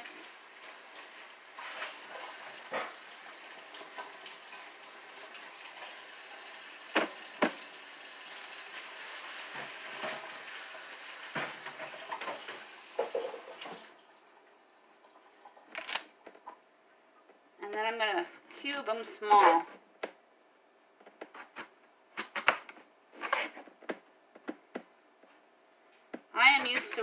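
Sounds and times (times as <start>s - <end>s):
tap water running into sink: 0.0s - 14.2s.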